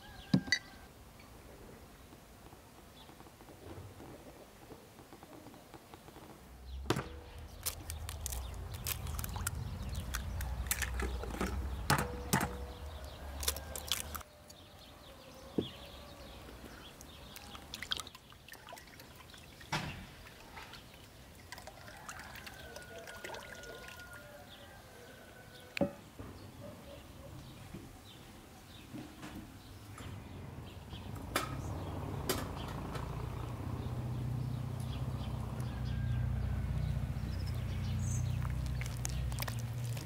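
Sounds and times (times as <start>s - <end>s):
liquid pouring into bowl: 20.4s - 24.2s.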